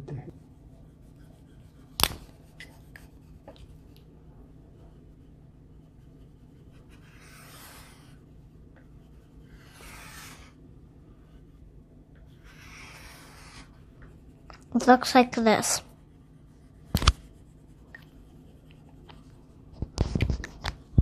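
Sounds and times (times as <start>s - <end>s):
colored pencil scratching on paper: 0.3s - 20.4s.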